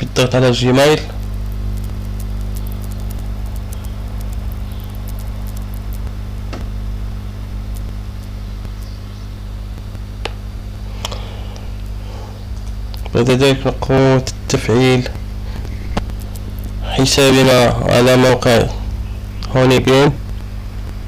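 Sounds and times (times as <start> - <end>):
low electrical hum: 0.0 - 21.0
faint clicks: 1.2 - 6.7, 7.7 - 9.1, 15.1 - 16.8.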